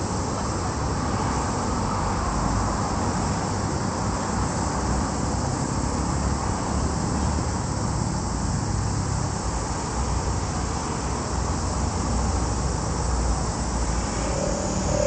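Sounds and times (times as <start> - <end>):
even hiss: 0.0 - 15.0
low fluctuating rumble: 13.7 - 15.0.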